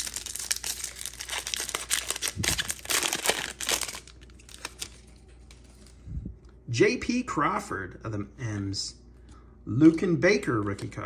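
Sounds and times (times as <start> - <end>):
plastic wrapper tearing and crinkling: 0.0 - 5.6.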